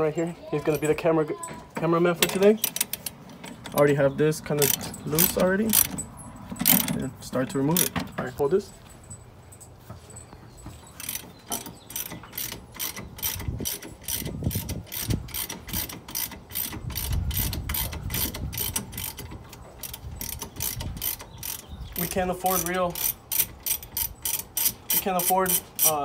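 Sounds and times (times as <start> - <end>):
ratchet wrench clicking: 4.6 - 6.9, 11.0 - 26.0.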